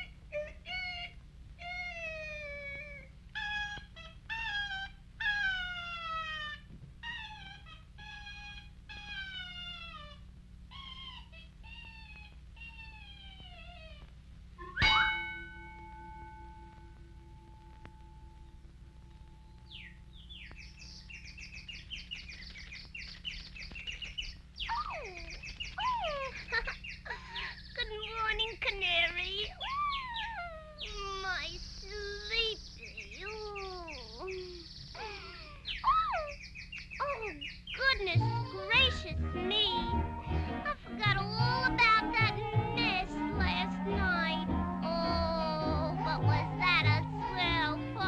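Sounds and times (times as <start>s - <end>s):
optical soundtrack hum: 0.0s - 48.0s
cartoon canary chirping: 19.7s - 39.9s.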